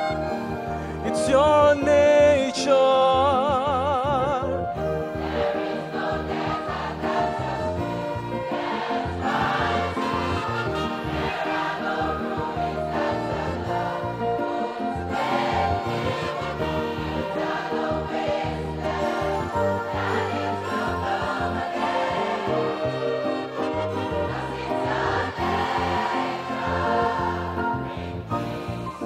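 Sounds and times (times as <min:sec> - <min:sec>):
orchestra of violins and winds: 0:00.0 - 0:01.4, 0:04.8 - 0:29.0
gospel choir singing: 0:00.0 - 0:29.0
male soloist singing with vibrato: 0:01.0 - 0:04.8.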